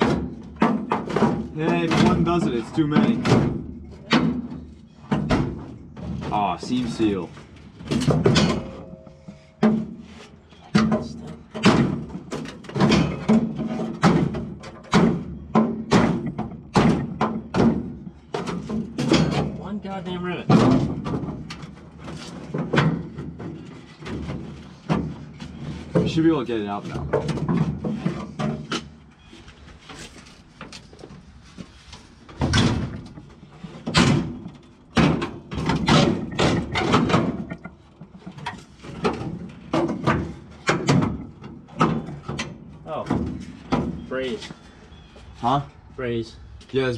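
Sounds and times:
metal clanks and knocks: 0.0 - 31.2, 32.1 - 45.6.

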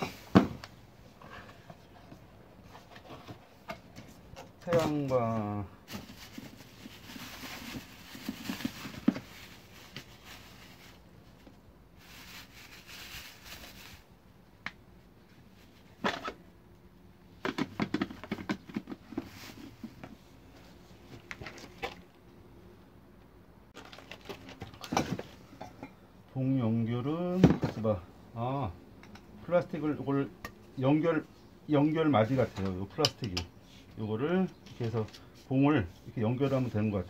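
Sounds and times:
plastic bag crinkling: 12.0 - 14.0, 23.8 - 24.9.

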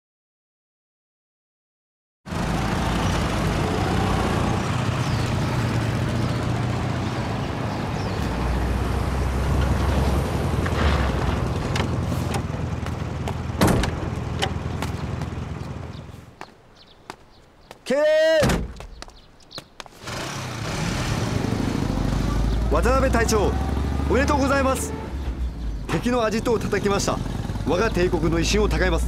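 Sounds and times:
motorcycle engines rumbling: 2.3 - 16.2, 20.0 - 29.0.

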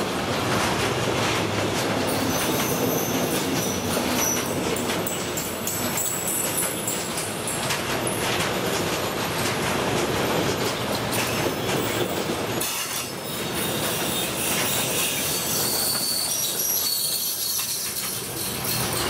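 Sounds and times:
freight train rumble and clatter: 0.0 - 19.0
high wheel squeal: 2.1 - 5.2, 12.6 - 19.0.

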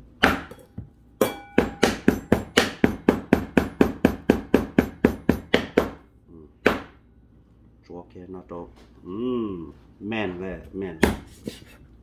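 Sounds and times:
knife chopping meat on wooden board: 0.2 - 0.6, 1.2 - 6.0, 6.6 - 7.0, 11.0 - 11.3.

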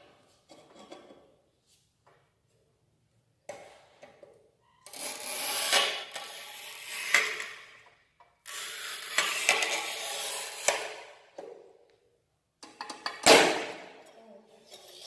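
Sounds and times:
tile cutter scraping tile: 4.8 - 7.8, 8.4 - 11.2, 14.6 - 15.0.

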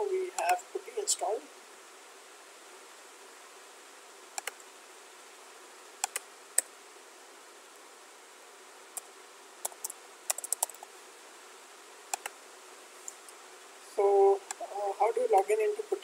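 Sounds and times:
faint hiss: 0.0 - 16.0
keyboard typing: 4.4 - 4.6, 6.0 - 6.2, 9.6 - 10.9, 12.1 - 12.3
computer mouse clicks: 4.4 - 4.7, 6.0 - 6.7, 9.0 - 10.9, 12.1 - 12.4.

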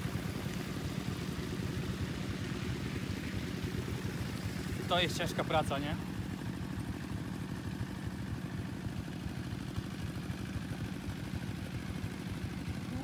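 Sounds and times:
small tractor engine running: 0.0 - 13.0.

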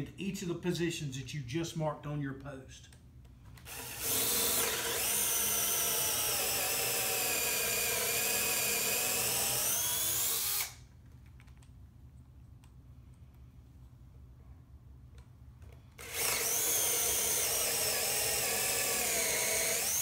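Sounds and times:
cordless drill boring into wood: 3.7 - 10.8, 16.0 - 20.0.

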